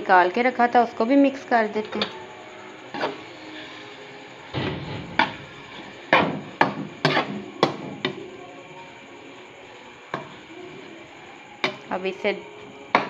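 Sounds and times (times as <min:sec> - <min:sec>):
spoon scraping a cooking pan: 0:02.9 - 0:03.7, 0:05.0 - 0:07.4.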